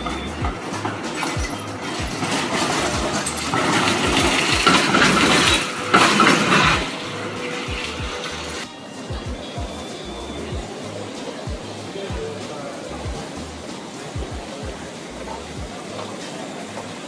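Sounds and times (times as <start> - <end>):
tram rumbling and rattling: 0.0 - 11.0
background music with kick drum: 0.0 - 16.0.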